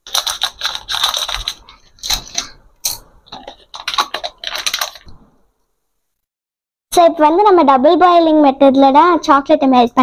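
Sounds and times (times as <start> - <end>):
plastic wrapper crinkling: 0.0 - 5.4.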